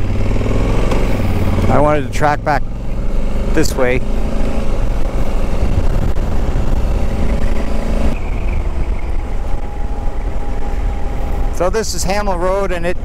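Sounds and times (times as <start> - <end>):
motorcycle engine running: 0.0 - 13.0
wind rush on microphone: 4.4 - 12.3.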